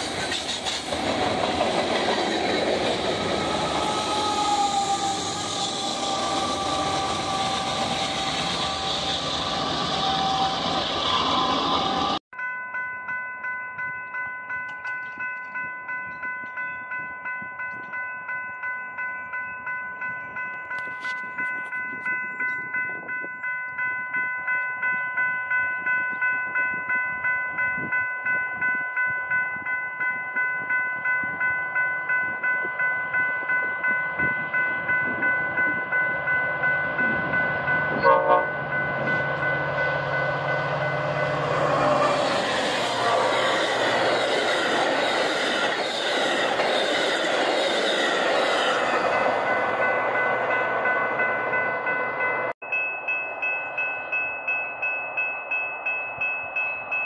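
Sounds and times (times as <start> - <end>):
train rumble: 0.0 - 12.2, 32.1 - 57.0
crossing warning bell ringing: 0.0 - 57.0.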